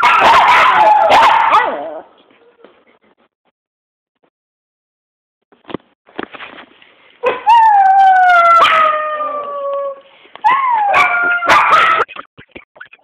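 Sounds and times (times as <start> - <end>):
small dog howling: 7.2 - 12.1.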